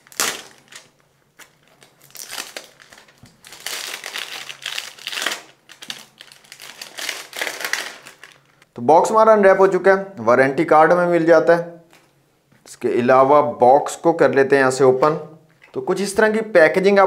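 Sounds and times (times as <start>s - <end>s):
plastic wrap crinkling: 0.0s - 8.6s
plastic wrap tearing: 0.0s - 8.6s.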